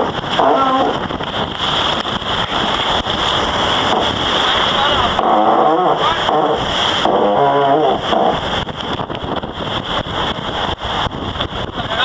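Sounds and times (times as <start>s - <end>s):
rushing water: 0.0s - 12.0s
wind buffeting microphone: 0.0s - 12.0s.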